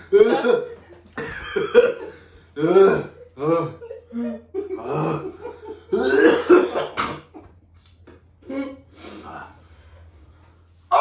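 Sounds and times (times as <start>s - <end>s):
man coughing and gagging: 0.0s - 7.4s
laughter: 0.3s - 2.2s, 3.2s - 6.0s.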